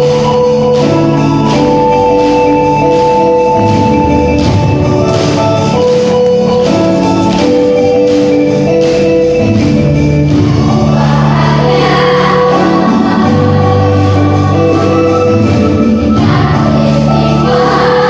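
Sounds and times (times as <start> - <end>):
light percussive beats: 0.0 - 18.0
choir singing in harmony: 10.6 - 18.0.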